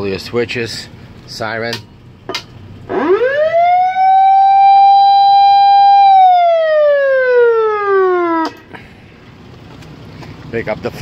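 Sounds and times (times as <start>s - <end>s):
fire truck siren wailing: 2.8s - 8.7s
siren switch click: 8.4s - 8.6s.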